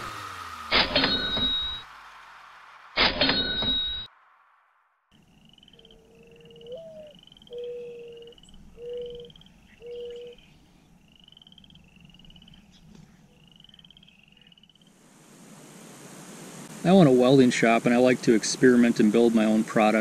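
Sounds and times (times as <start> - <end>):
frogs trilling: 5.2 - 15.0.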